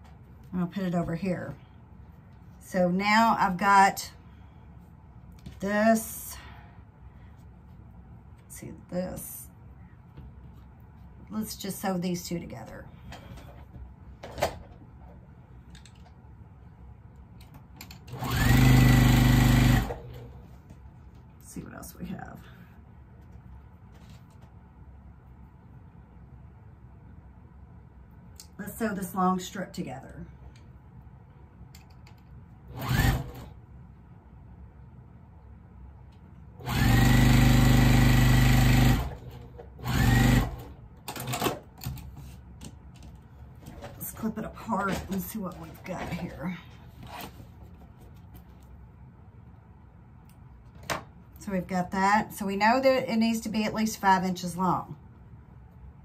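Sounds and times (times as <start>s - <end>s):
sewing machine whine: 18.1s - 20.4s, 32.7s - 33.5s, 36.6s - 41.4s.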